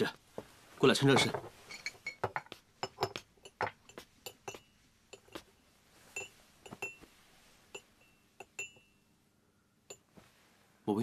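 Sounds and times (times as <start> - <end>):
spoon clinking against porcelain bowl: 1.6 - 5.5, 6.1 - 7.1, 7.7 - 9.0, 9.9 - 10.1.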